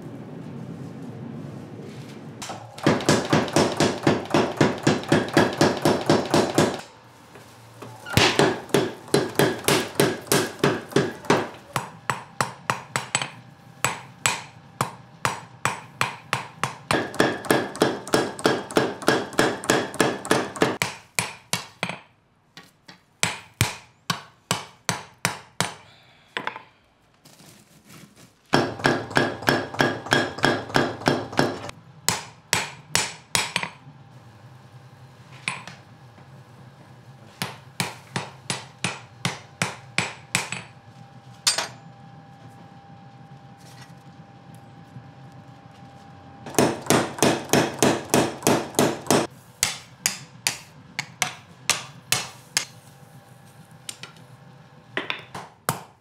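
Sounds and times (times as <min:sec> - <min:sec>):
hammer striking metal on anvil: 0:02.4 - 0:06.8, 0:08.2 - 0:22.1, 0:23.2 - 0:25.8, 0:28.6 - 0:33.8, 0:37.4 - 0:40.8, 0:41.5 - 0:41.8, 0:46.5 - 0:52.8.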